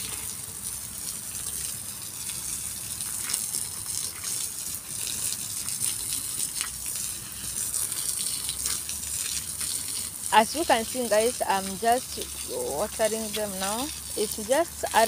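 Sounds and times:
hose water spraying onto grass: 0.0 - 15.0
water splashes: 0.0 - 15.0.

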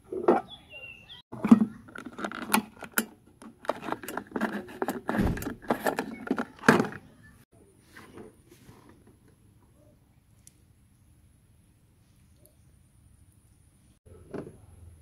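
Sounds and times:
fuel cap clicking and rattling: 1.4 - 7.0.

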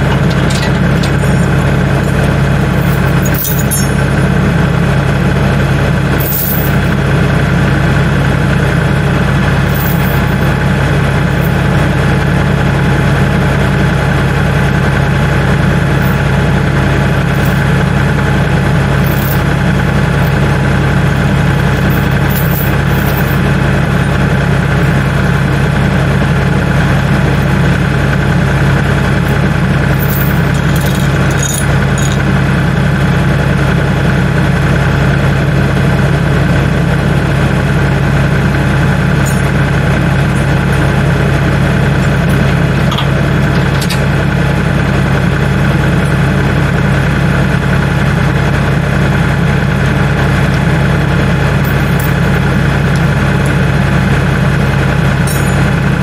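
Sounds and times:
metal chain clinking: 0.0 - 4.0, 6.2 - 6.9, 9.7 - 10.5, 11.3 - 11.8, 16.0 - 16.2, 17.4 - 17.7, 19.0 - 20.4, 21.2 - 23.4, 29.3 - 32.3, 39.2 - 39.6, 51.6 - 53.6, 54.6 - 55.7
tractor engine idling: 0.0 - 56.0.

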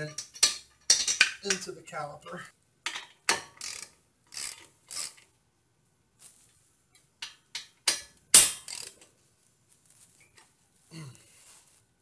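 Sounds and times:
metallic clicking and clinking: 0.0 - 1.7.

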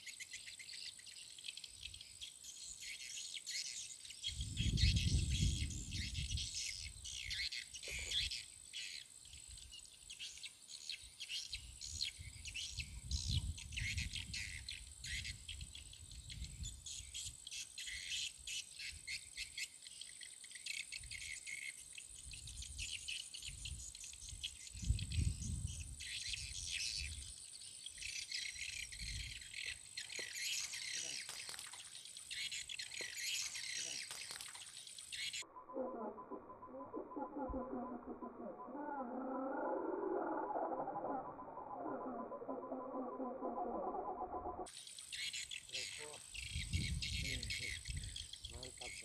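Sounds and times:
insects chirping: 0.0 - 49.0.

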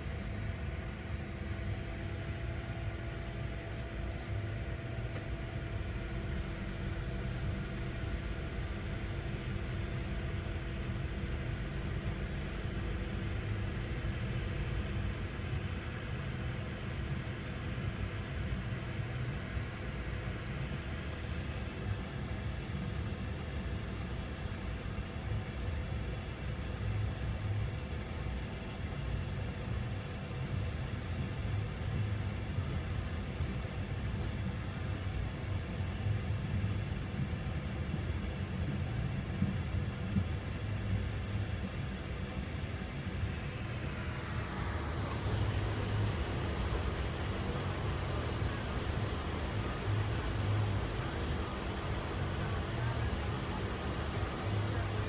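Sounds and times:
freight train rumbling: 36.4 - 55.0.

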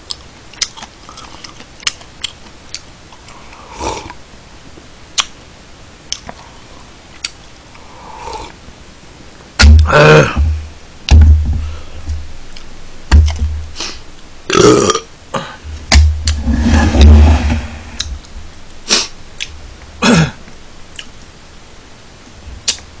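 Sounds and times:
man burping: 9.6 - 10.6, 14.5 - 15.7, 20.0 - 20.5.

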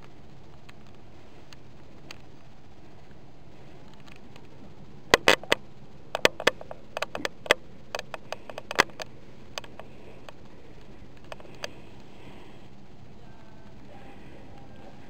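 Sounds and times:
low steady hum: 0.0 - 15.0
sharp clicks and taps: 5.1 - 12.1.

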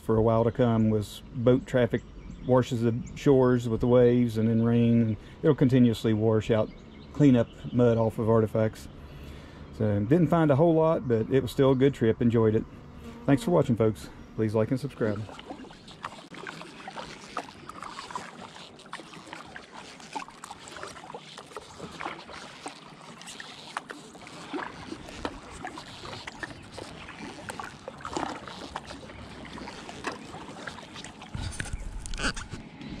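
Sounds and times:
kayak paddle strokes in water: 11.6 - 33.0
water splashes and drips: 14.6 - 32.2.

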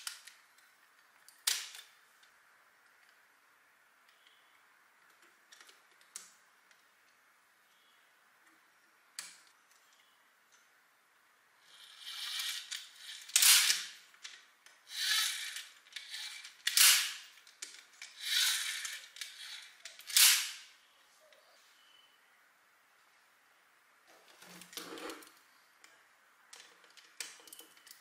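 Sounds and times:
motor grinding wind-up: 14.9 - 17.1, 18.2 - 20.4.

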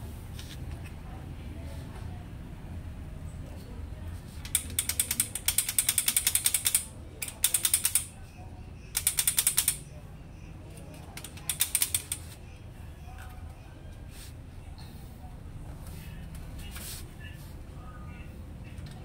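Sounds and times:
rapid ratcheting clicks of printer gears: 4.4 - 8.2, 8.9 - 9.9, 11.1 - 12.3.

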